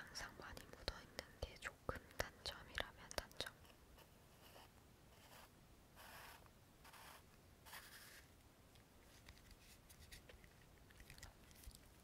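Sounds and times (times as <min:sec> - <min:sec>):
faint rustling and scraping: 0:03.6 - 0:12.0.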